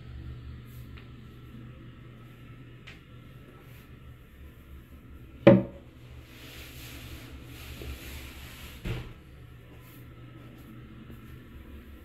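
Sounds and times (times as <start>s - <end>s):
toilet lid knock: 5.5s - 5.8s.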